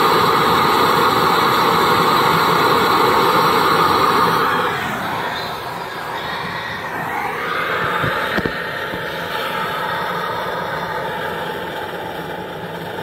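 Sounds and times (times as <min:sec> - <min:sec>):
stove burner hissing: 0:00.0 - 0:13.0.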